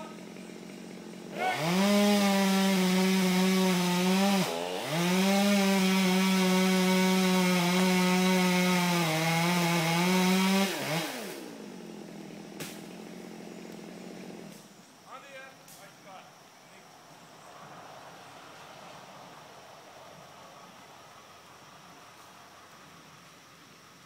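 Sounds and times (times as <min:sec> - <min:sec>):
chainsaw cutting wood: 0:00.0 - 0:14.7.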